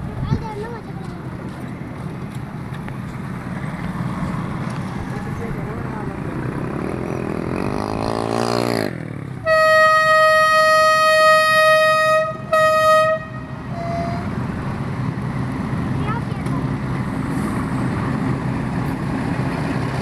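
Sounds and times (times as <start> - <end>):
motorcycle engine revving: 5.3 - 10.2
locomotive air horn blasts: 9.4 - 14.4.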